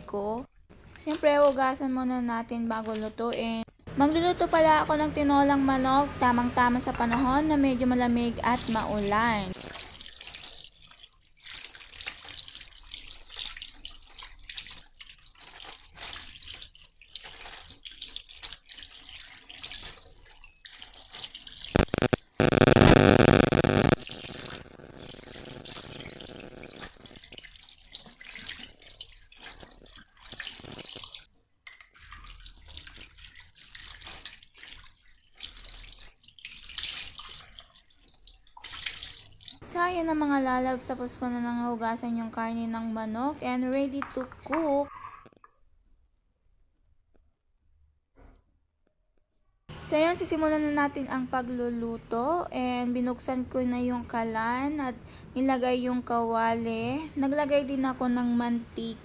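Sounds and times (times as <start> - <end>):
tap water splashing in sink: 26.9 - 39.6.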